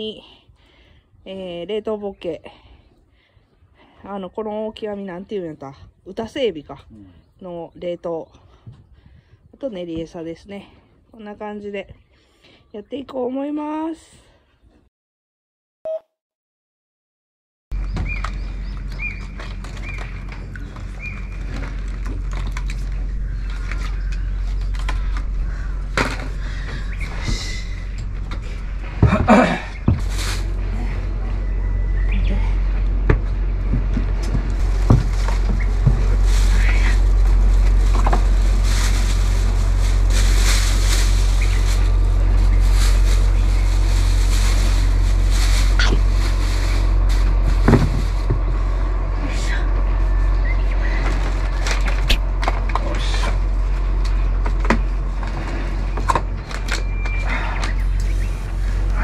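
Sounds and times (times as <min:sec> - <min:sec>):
low rumble: 0:17.7 - 0:59.0.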